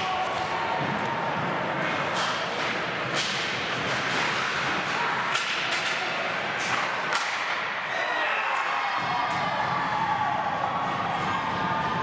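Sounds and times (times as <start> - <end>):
skates scraping ice: 0.0 - 8.1
hockey sticks striking puck: 0.0 - 9.8.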